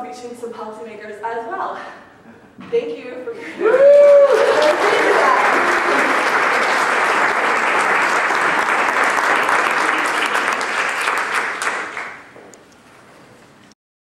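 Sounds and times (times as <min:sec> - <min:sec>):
audience applauding: 0:03.6 - 0:12.4.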